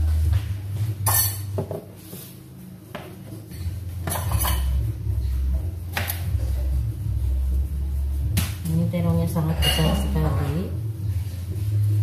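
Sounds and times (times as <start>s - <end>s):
low steady hum: 3.3s - 12.0s
kitchenware clinks and knocks: 4.0s - 4.8s, 9.5s - 10.6s.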